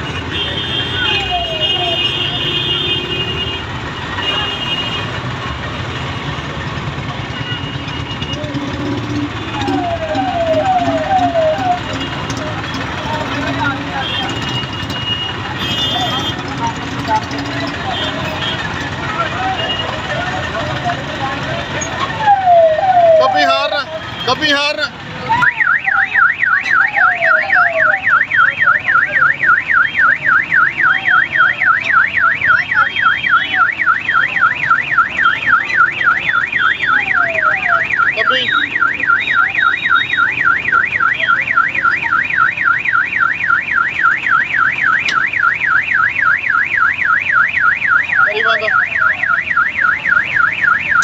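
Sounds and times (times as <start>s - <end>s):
electronic warbling siren: 8.0s - 13.6s, 21.8s - 23.9s, 25.2s - 51.0s.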